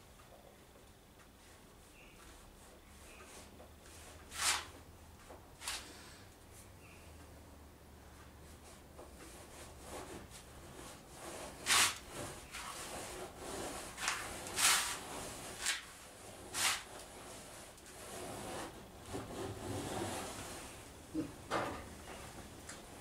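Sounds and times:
tool scraping wood: 9.2 - 20.8.

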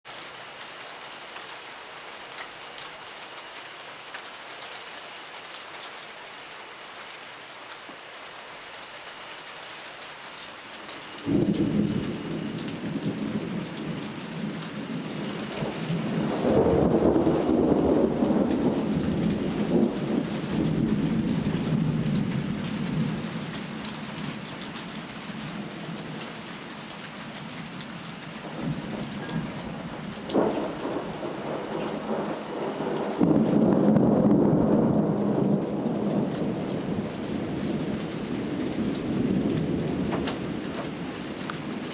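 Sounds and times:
rain falling: 0.0 - 41.9
thunder rolling: 11.1 - 24.7, 27.7 - 41.9
sharp thunder crack: 11.2 - 14.2, 14.9 - 22.3, 28.4 - 37.5, 38.4 - 41.0.

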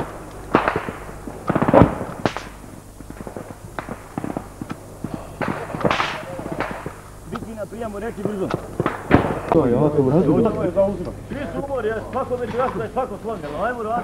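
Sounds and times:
automatic gunfire burst: 0.0 - 9.7
rifle shots: 0.0 - 9.7.

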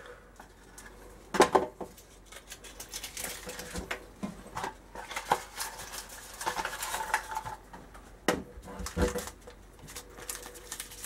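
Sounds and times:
foil packs crinkling: 1.9 - 4.0, 5.0 - 7.6, 8.7 - 11.0
scissors cutting foil: 2.2 - 3.8, 9.1 - 11.0.

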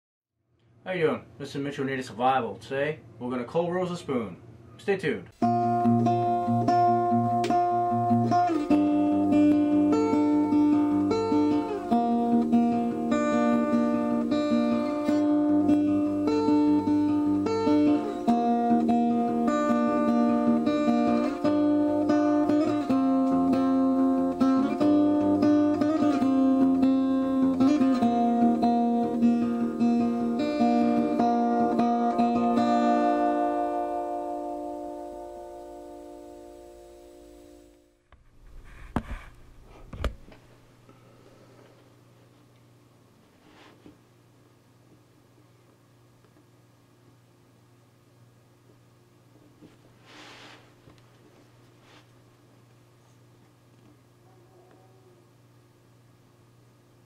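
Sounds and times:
acoustic guitar music: 5.4 - 39.3.

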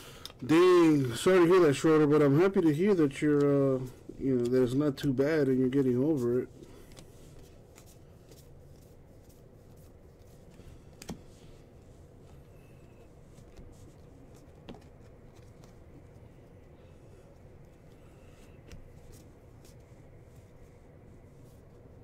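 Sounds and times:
trading cards rustling and clicking: 5.8 - 16.7.

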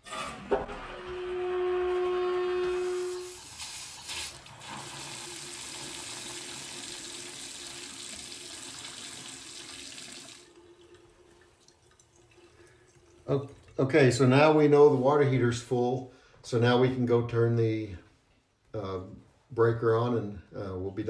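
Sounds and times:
faucet water pouring into sink: 2.8 - 13.8.

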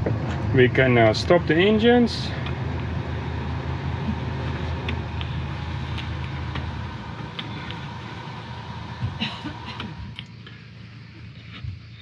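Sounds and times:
diesel engines idling: 0.0 - 12.0.

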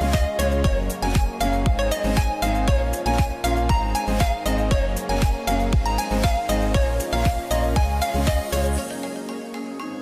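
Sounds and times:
electronic music with kick drum: 0.0 - 10.0.

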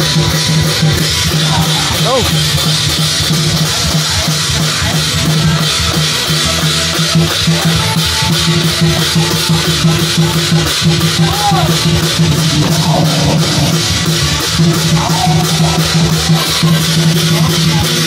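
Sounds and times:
cymbals: 0.0 - 18.0
fast drum beat: 0.0 - 18.0
sustained bass line: 11.7 - 16.4.

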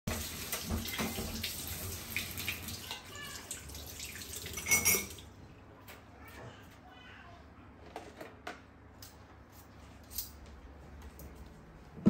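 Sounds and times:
hands rinsed with splashing: 0.1 - 5.3.

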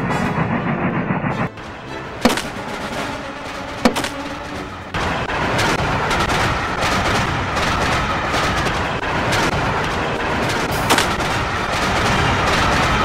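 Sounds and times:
loud steady rattling: 0.0 - 13.0
sharp bangs: 0.0 - 13.0.

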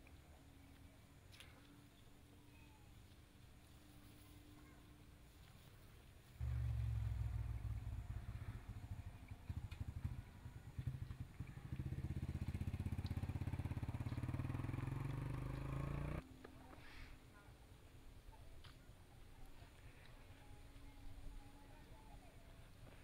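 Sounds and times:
vehicle engine accelerating: 6.4 - 16.2.

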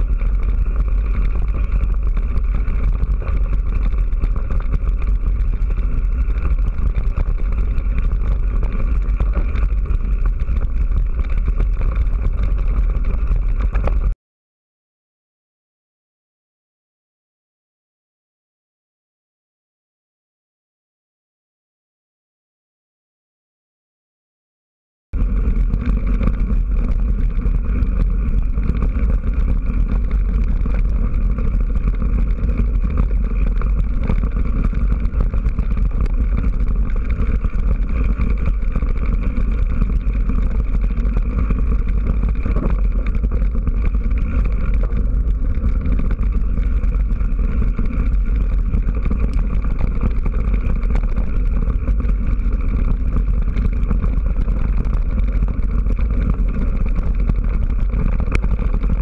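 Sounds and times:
bike rumbling over gravel trail: 0.0 - 14.2, 25.2 - 59.0.

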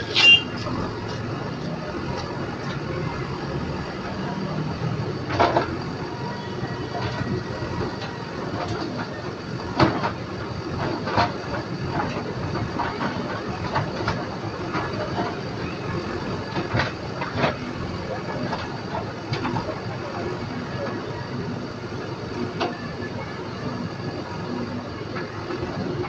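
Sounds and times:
diesel engine running: 0.0 - 26.0.

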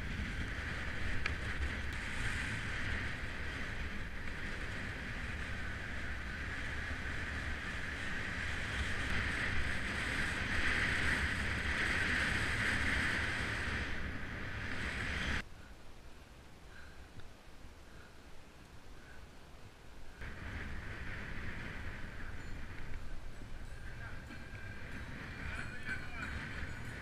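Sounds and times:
tyres rumbling on asphalt: 0.0 - 15.4, 20.2 - 27.0
wind buffeting microphone: 0.0 - 15.4, 20.2 - 27.0.

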